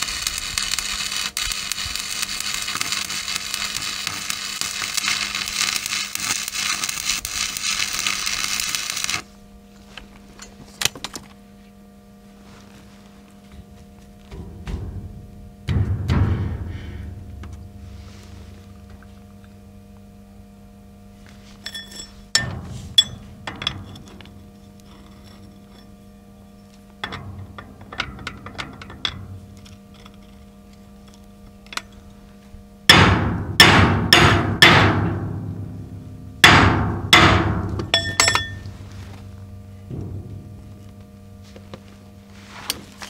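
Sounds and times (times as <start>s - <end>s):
hammer striking steel bucket: 32.9s - 38.7s.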